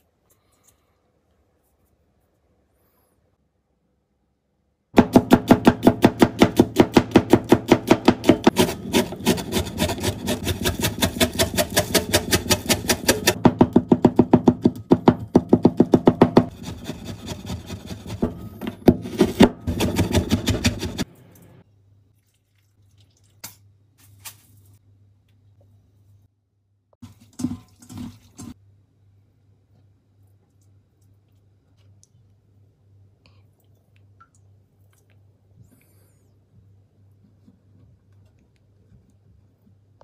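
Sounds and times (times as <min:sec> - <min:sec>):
knife chopping on wooden board: 0:05.0 - 0:21.1.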